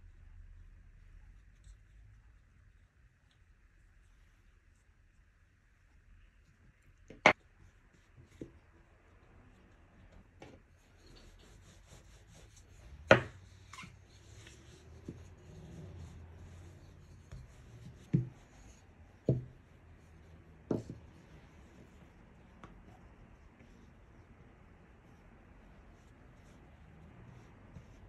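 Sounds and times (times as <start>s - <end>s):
rolling pin rubbing on dough: 9.6s - 28.0s
wooden rolling pin knocks: 19.3s - 19.6s, 20.7s - 21.0s.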